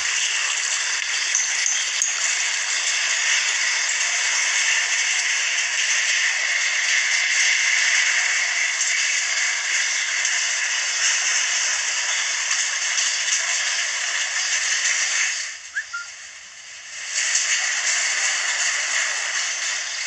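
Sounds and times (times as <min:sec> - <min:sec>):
faint chirp: 0:15.7 - 0:16.1.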